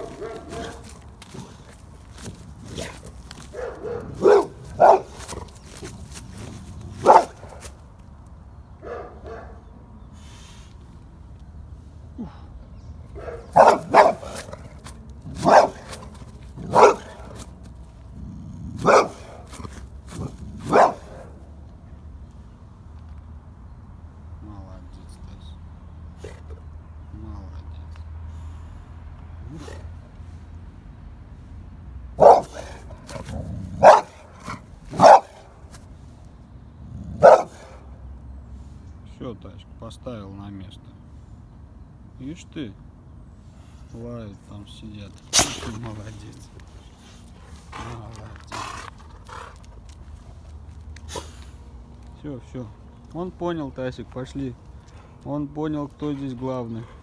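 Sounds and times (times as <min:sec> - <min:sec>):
dog barking: 0:00.0 - 0:00.9, 0:02.8 - 0:05.4, 0:07.0 - 0:07.7, 0:08.8 - 0:09.6, 0:13.1 - 0:14.6, 0:15.3 - 0:17.4, 0:18.8 - 0:19.5, 0:20.6 - 0:21.4, 0:32.2 - 0:32.9, 0:33.8 - 0:35.5, 0:37.2 - 0:37.8.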